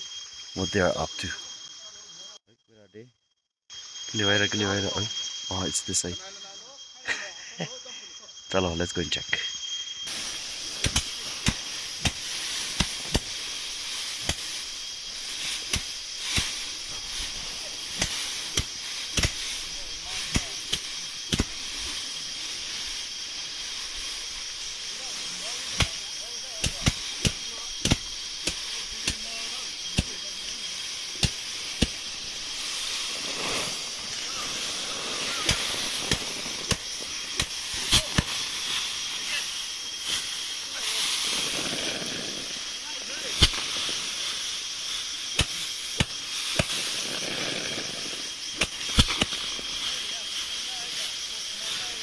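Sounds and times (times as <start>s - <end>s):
steady high hiss: 0.0s - 2.4s, 3.7s - 52.0s
sickle snapping rice stalks: 10.1s - 52.0s
dry straw crackling and rustling: 29.6s - 52.0s.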